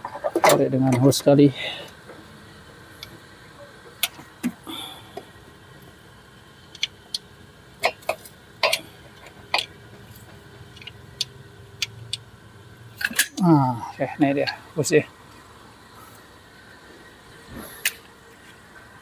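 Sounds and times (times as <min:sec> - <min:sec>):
hose fittings clicking and knocking: 0:06.7 - 0:12.2.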